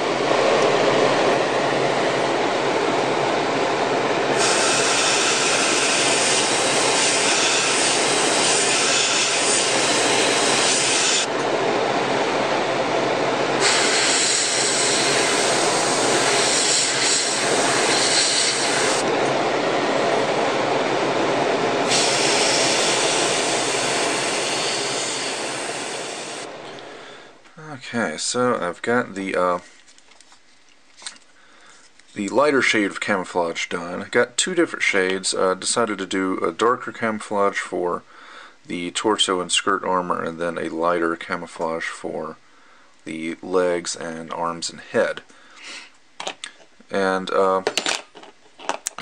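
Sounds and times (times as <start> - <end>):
steady motor noise: 0.1 - 26.6
airbrush spraying hiss: 4.4 - 11.3, 13.6 - 19.0, 21.8 - 26.5.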